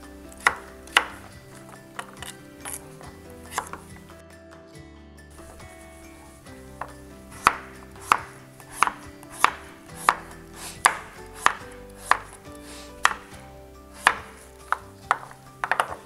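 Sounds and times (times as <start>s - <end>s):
knife chopping squash on cutting board: 0.3s - 2.8s, 3.5s - 3.9s, 6.8s - 13.4s, 14.0s - 16.0s.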